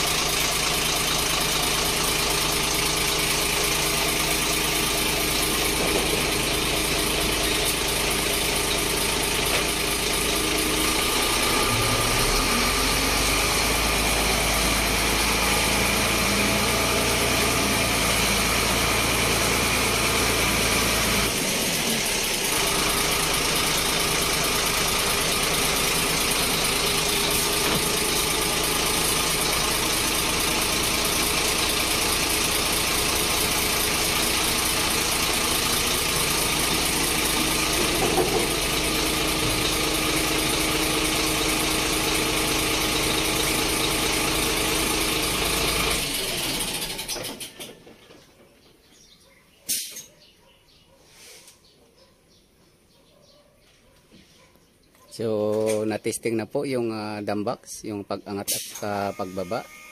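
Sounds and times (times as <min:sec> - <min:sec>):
truck diesel engine running: 0:00.0 - 0:47.9
hydraulic hoist: 0:03.8 - 0:48.0, 0:58.4 - 0:59.9.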